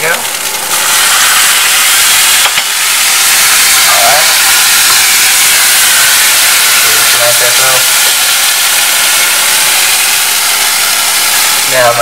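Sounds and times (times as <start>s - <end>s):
loud sizzling hiss: 0.0s - 12.0s.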